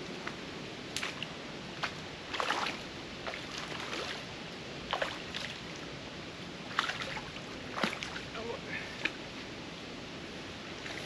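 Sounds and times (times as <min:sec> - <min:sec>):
water splashing: 0:01.0 - 0:04.2, 0:06.7 - 0:09.2.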